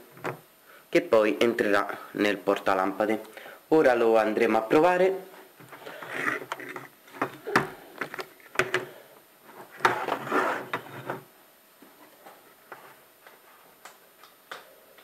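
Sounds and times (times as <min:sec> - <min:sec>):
plastic box knocks and clicks: 0:06.4 - 0:08.9
rustling scrape on concrete: 0:09.9 - 0:10.8.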